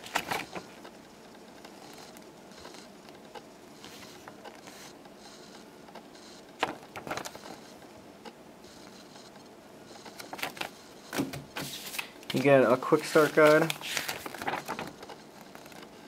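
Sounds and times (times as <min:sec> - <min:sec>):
paper pamphlet rustling: 0:00.0 - 0:00.8, 0:06.6 - 0:07.6, 0:10.2 - 0:15.8
paper crackling: 0:00.0 - 0:00.9, 0:06.6 - 0:07.6, 0:10.2 - 0:16.0.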